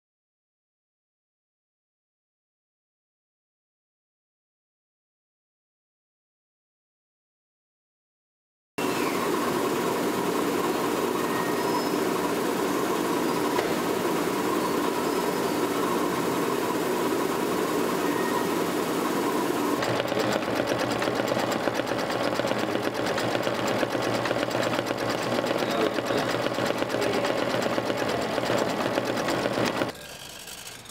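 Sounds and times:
laser engraver humming: 0:08.8 - 0:30.9
sewing machine stitching fast: 0:08.8 - 0:30.9.

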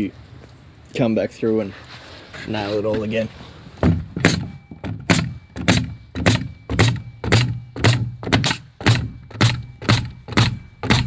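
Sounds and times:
pneumatic nail gun firing: 0:05.1 - 0:11.0.

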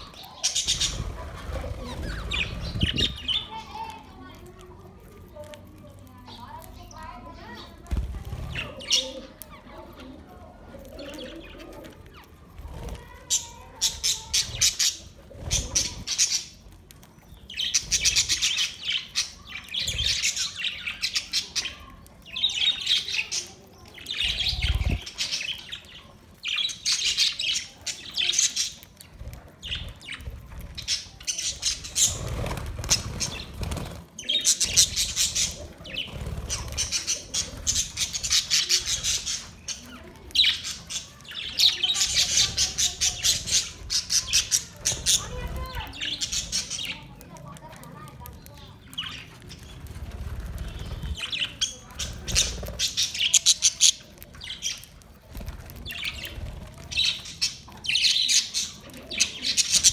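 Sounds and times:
budgerigars chattering and squawking: 0:00.0 - 0:03.8, 0:13.3 - 0:16.6, 0:17.3 - 0:47.3, 0:50.5 - 0:59.9.

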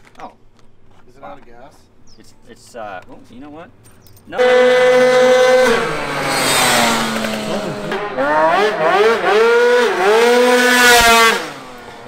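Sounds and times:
scooter engine revving: 0:04.4 - 0:12.0.

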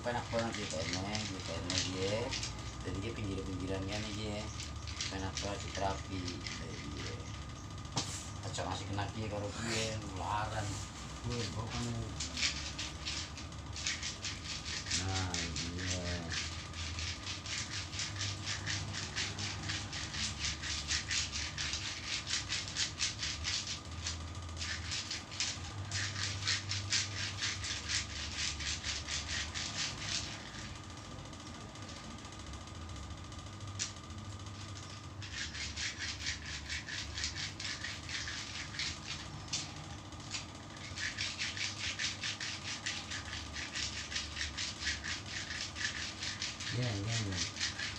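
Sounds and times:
hands rubbing skin: 0:34.9 - 0:39.7, 0:40.3 - 0:46.7.

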